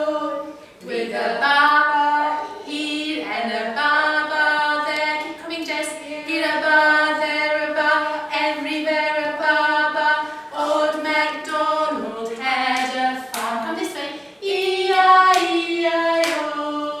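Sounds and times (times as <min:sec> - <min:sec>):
high voice singing: 0:00.0 - 0:05.8.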